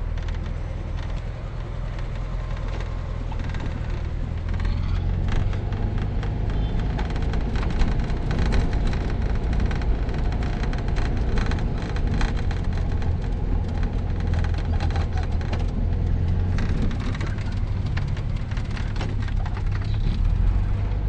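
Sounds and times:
car interior drone: 0.0 - 21.0.

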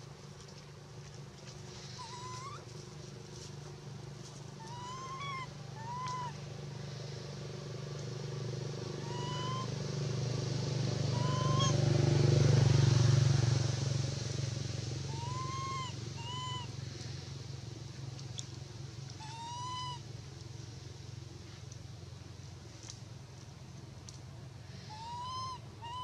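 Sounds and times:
low engine hum: 0.0 - 26.0
infant monkey coo calls: 1.8 - 2.7, 4.5 - 6.4, 8.9 - 9.8, 11.1 - 11.8, 15.0 - 16.8, 19.1 - 20.1, 24.8 - 26.0.

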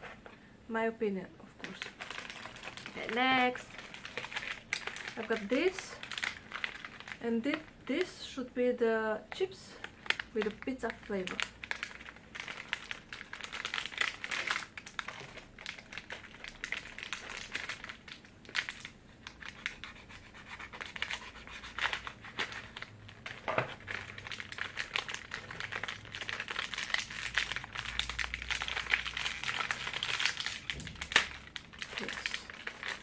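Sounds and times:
chip bag crinkling and tearing: 1.6 - 8.1, 9.7 - 33.0.

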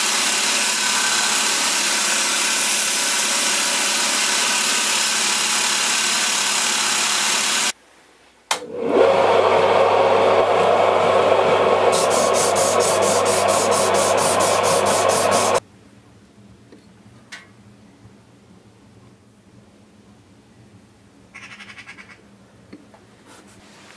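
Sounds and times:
belt grinder grinding steel: 0.0 - 7.7, 11.9 - 15.6
loud steady rasping: 0.0 - 7.7, 11.9 - 15.6
abrasive stick rubbing blade: 12.0 - 15.6.

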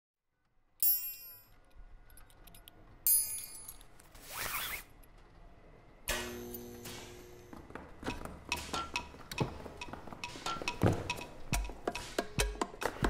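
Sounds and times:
sharp metallic clinks: 0.8 - 4.0.

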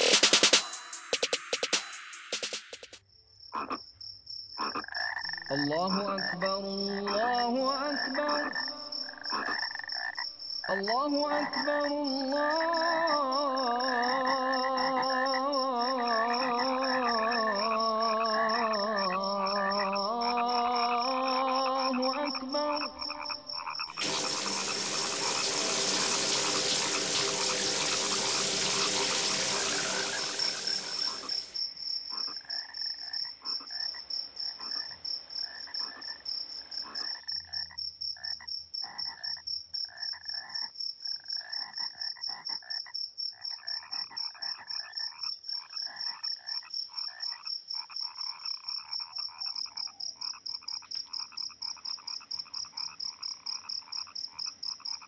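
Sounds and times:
frogs croaking: 3.4 - 55.0
constant high-pitched tone: 22.0 - 31.6
loud rushing noise: 24.0 - 31.5.

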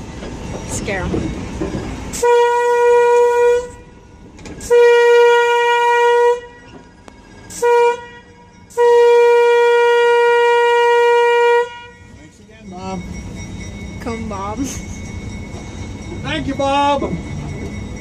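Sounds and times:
locomotive horn blasts: 2.1 - 6.7, 7.5 - 12.3.

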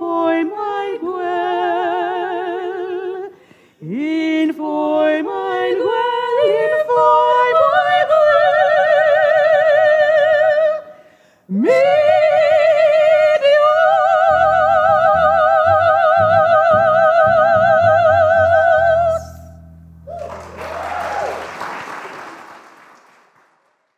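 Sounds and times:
women singing with vibrato: 0.0 - 19.6
upright bass and piano chords: 14.1 - 21.3
audience applause: 20.1 - 23.9.

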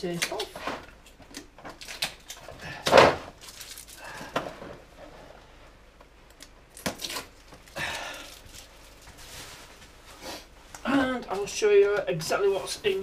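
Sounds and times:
packing tape ripping: 6.7 - 7.8.

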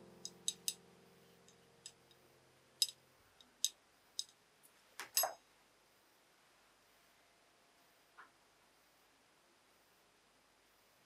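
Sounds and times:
soft piano music: 0.0 - 3.4.

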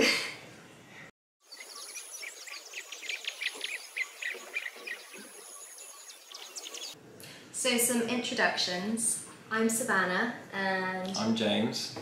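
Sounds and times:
birds chirping: 1.4 - 7.0
high insect-like whine: 1.4 - 7.0.

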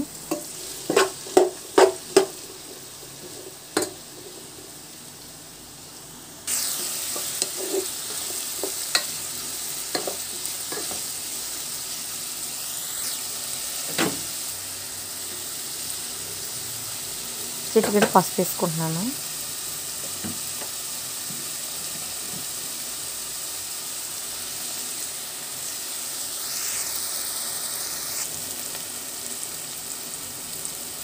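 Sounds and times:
onions sizzling in hot oil: 0.0 - 31.0
spoon scraping and tapping pan: 0.3 - 4.0, 7.1 - 9.1, 9.9 - 11.0.

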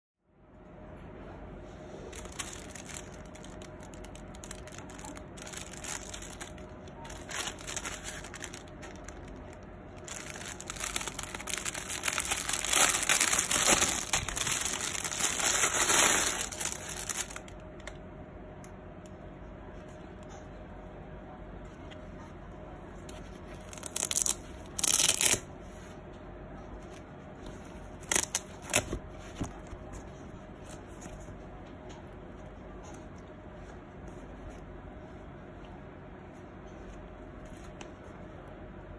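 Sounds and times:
plastic bag crinkling: 2.1 - 17.9, 23.6 - 25.4, 28.0 - 29.8.

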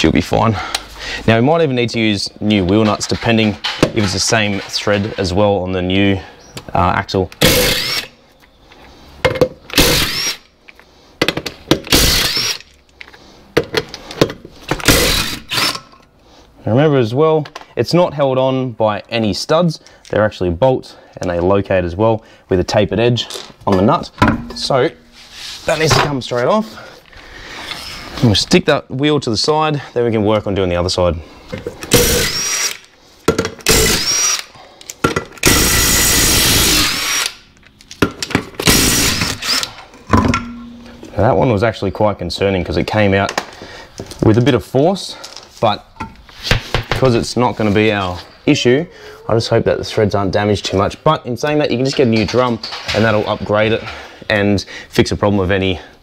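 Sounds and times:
power tool motor whine: 7.4 - 8.1, 35.4 - 37.4
impact wrench whining: 7.4 - 8.2, 9.7 - 10.5, 11.2 - 12.8, 14.7 - 16.0, 27.6 - 28.2, 31.8 - 34.6, 35.3 - 41.1.

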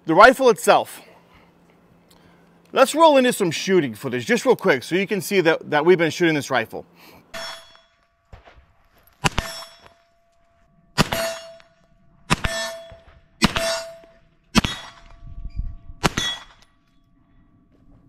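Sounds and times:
steel target ringing clang: 7.3 - 17.0
gunshots: 7.4 - 9.9, 11.0 - 11.6, 12.3 - 15.2, 16.0 - 16.6.

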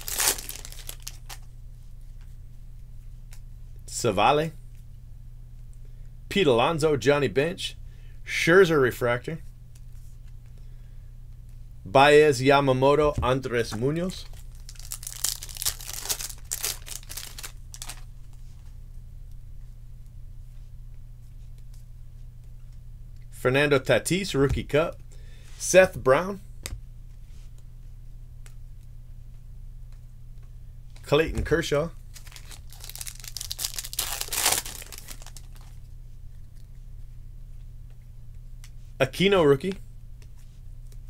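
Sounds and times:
cards rustling: 0.0 - 1.4, 13.6 - 18.5, 32.1 - 35.8
trading cards being flipped: 0.0 - 1.4, 32.2 - 35.7
steady low hum: 0.0 - 41.0.

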